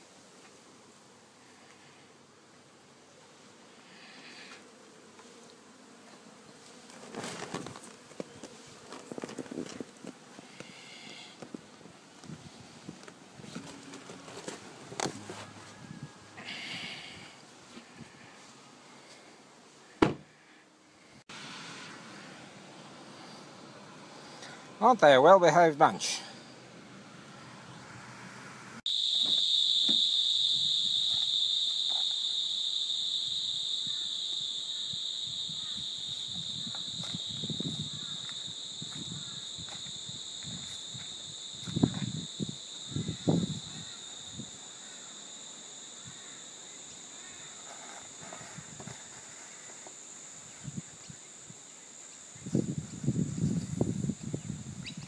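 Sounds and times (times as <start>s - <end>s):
bee swarm humming: 0.0s - 24.7s, 26.7s - 50.2s
insects trilling: 3.6s - 11.8s, 13.6s - 19.1s, 28.9s - 55.0s.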